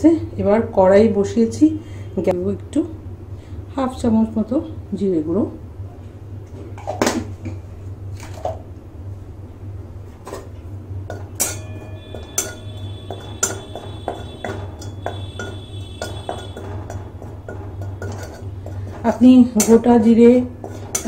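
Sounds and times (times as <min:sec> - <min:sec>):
metal spatula scraping metal pan: 0:11.1 - 0:21.0
pan ringing: 0:11.1 - 0:21.0.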